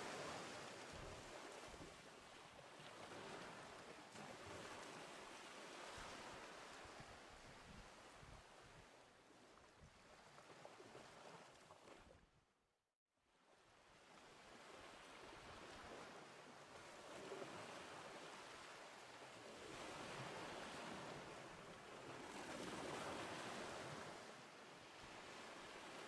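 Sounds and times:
small sea waves washing in: 0.0 - 12.0, 14.1 - 26.0.

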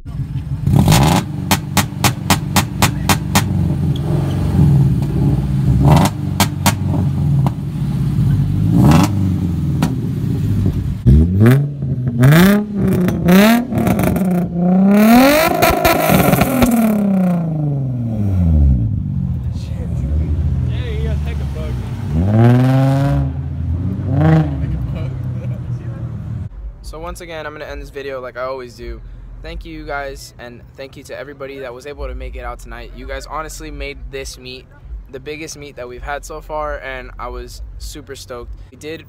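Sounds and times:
sports car engine revving: 0.0 - 26.6
exhaust pops: 0.2 - 17.9.

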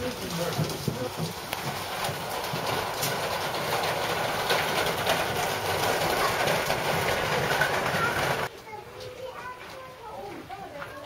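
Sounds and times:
rumbling background noise: 0.0 - 8.5
many people talking: 5.8 - 11.0.

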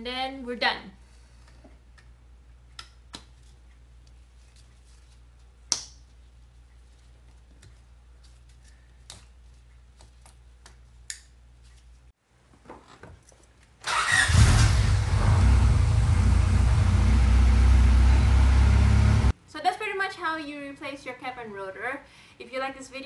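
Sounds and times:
car engine starting and running: 13.9 - 19.3.

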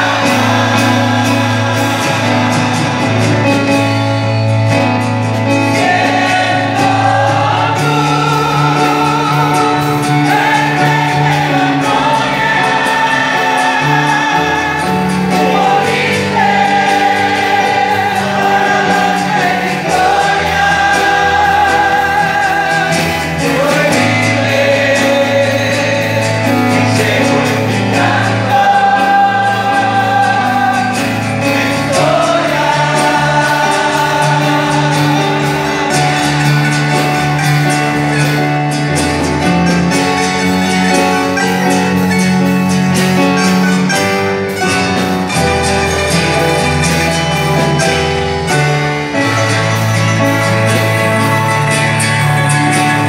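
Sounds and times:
choir singing a hymn: 0.0 - 53.0
guitars and mandolins: 0.0 - 53.0.

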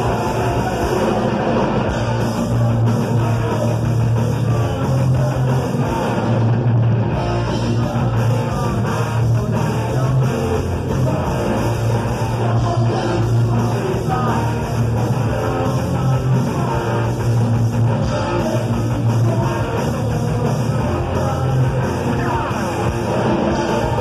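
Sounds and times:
bass guitar: 0.0 - 24.0
drums: 0.0 - 24.0
electric guitars: 0.0 - 24.0.

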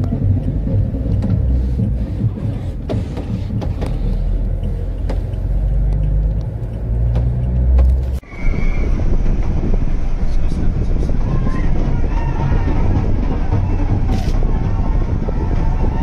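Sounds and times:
sharp clicks and knocks: 0.0 - 8.2
car driving rumble from inside: 0.0 - 16.0.

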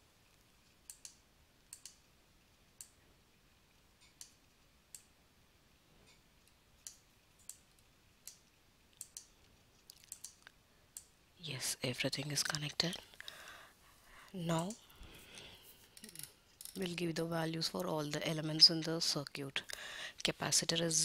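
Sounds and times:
computer mouse clicking: 0.2 - 2.1, 2.7 - 3.0, 4.0 - 5.1, 6.1 - 11.1.

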